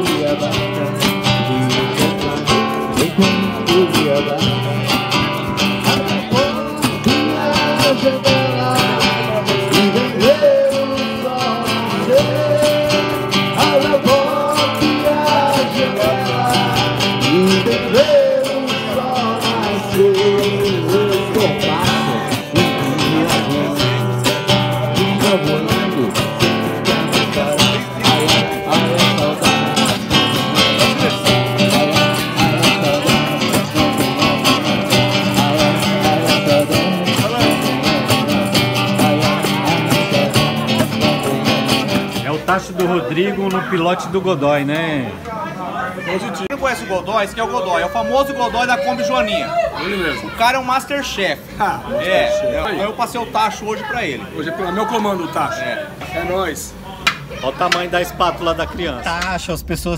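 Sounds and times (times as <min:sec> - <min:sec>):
person singing: 0:00.0 - 0:42.3
strummed acoustic guitar: 0:00.0 - 0:45.2.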